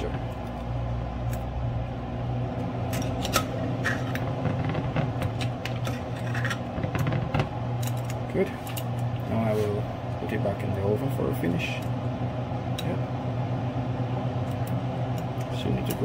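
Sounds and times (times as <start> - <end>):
steady low hum: 0.0 - 16.0
metal spoon scraping a pan: 5.8 - 6.7.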